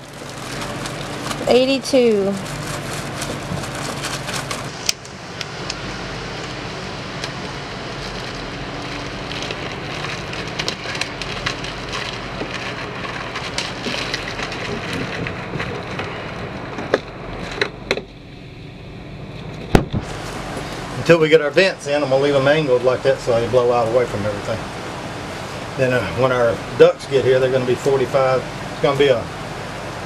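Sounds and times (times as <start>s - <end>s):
plastic crinkling and crackling: 0.0s - 18.1s.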